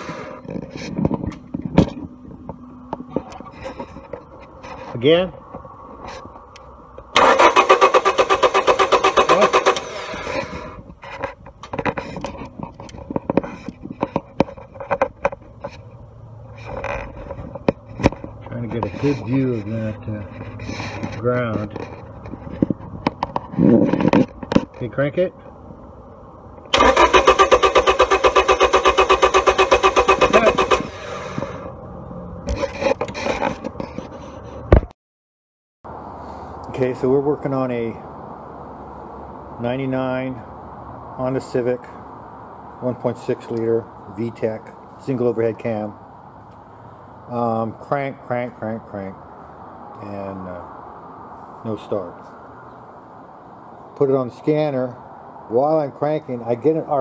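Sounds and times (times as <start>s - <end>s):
car engine cranking: 0.0s - 5.0s, 6.0s - 24.9s, 26.6s - 31.7s
car starter motor cranking: 7.0s - 10.9s, 26.6s - 31.7s.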